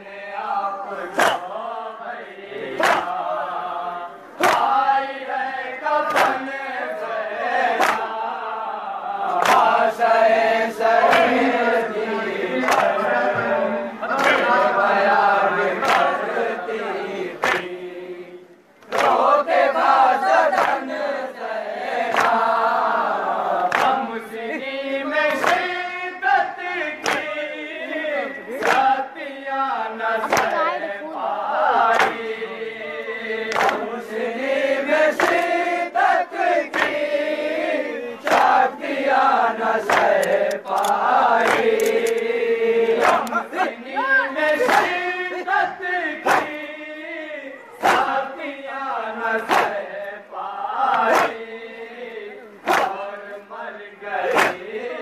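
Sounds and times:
men chanting a lament: 0.0s - 55.0s
chest-beating slaps: 1.2s - 1.5s, 2.8s - 3.2s, 4.4s - 4.8s, 6.0s - 6.4s, 7.7s - 8.2s, 27.0s - 27.3s, 28.6s - 28.9s, 39.8s - 42.3s, 42.9s - 43.5s, 46.2s - 46.6s, 47.8s - 48.2s, 49.4s - 49.8s, 50.9s - 51.4s, 52.7s - 53.1s, 54.3s - 54.7s.

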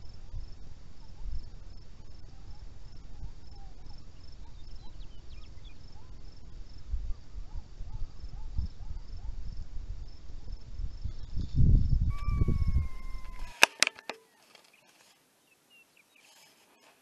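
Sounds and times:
wind rumble on microphone: 0.0s - 13.6s
insects chirping: 0.0s - 17.0s
long falling call: 12.1s - 14.4s
sharp clicks: 13.4s - 14.8s.

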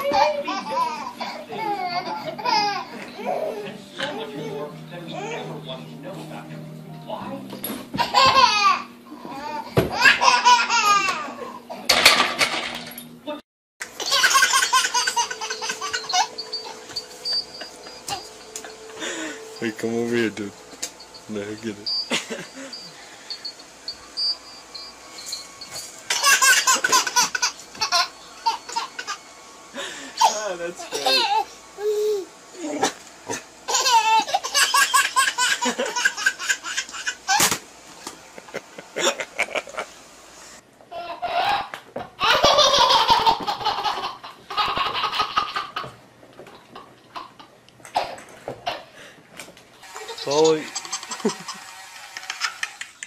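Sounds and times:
baby giggling: 0.0s - 3.7s, 14.0s - 19.4s, 26.1s - 29.2s, 33.7s - 37.4s, 40.9s - 45.9s.

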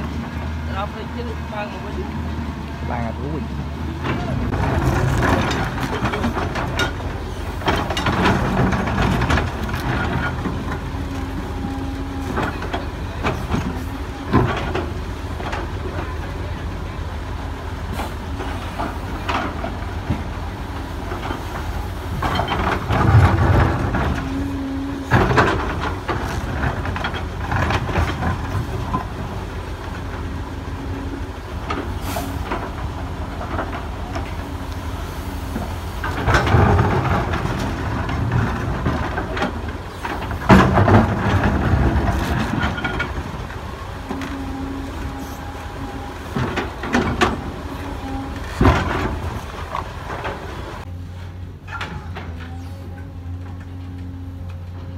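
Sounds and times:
excavator diesel engine: 0.0s - 54.9s
rocks and soil clattering: 4.0s - 16.7s, 18.0s - 50.9s.

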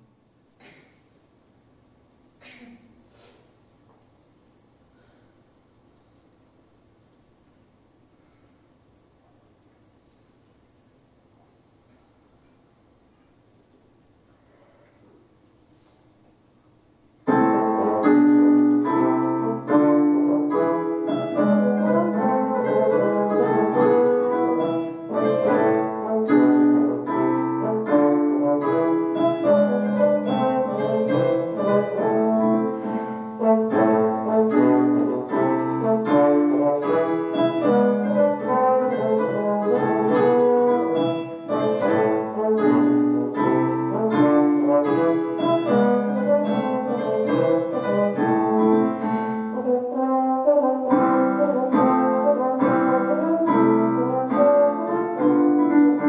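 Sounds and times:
piano: 17.0s - 56.0s
trombone: 17.3s - 56.0s.

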